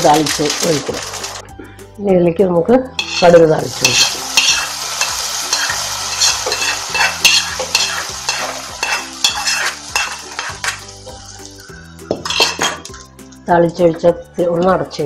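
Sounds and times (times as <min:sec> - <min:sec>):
hot oil sizzling: 0:00.0 - 0:01.4, 0:03.0 - 0:13.4
metal spatula scraping iron pan: 0:03.0 - 0:10.8, 0:12.2 - 0:13.0.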